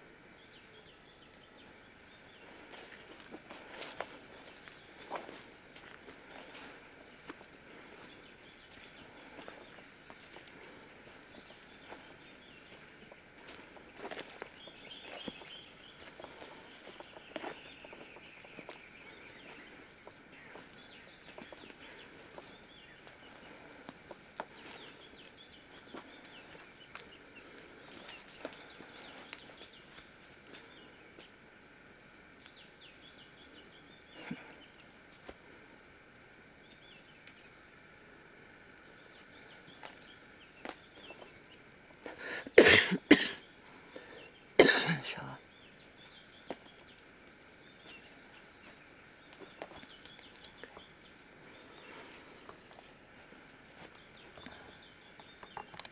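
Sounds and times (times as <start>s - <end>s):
faint birdsong: 0.0s - 55.9s
footsteps rustling through undergrowth: 2.1s - 31.4s, 46.0s - 55.1s.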